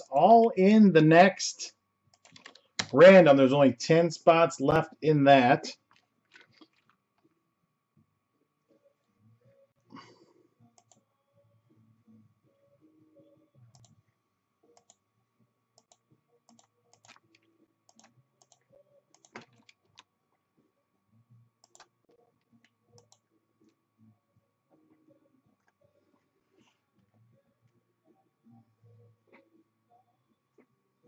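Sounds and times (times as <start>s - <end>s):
keyboard and mouse clicking: 2.1s - 3.0s, 15.8s - 17.3s, 17.9s - 18.6s, 19.2s - 20.1s, 21.6s - 21.9s.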